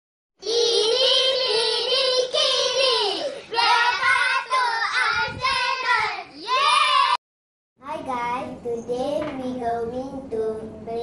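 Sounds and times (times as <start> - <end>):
child singing: 0.4 - 6.7.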